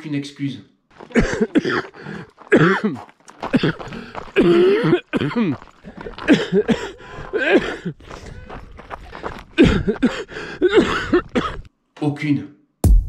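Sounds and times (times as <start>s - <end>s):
man coughing and clearing throat: 1.0s - 5.6s, 6.2s - 8.0s, 9.6s - 11.7s.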